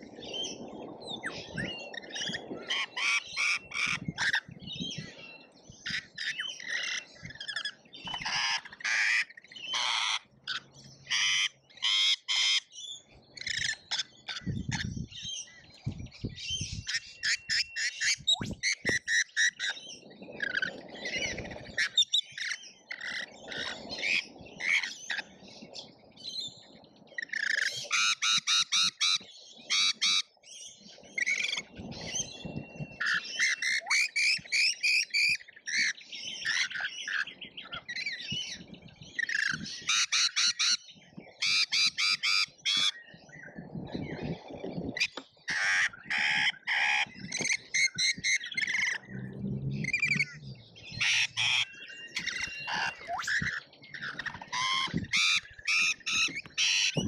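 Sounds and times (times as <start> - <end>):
lorikeets screeching: 5.8 - 12.7, 33.0 - 38.6, 45.0 - 57.0.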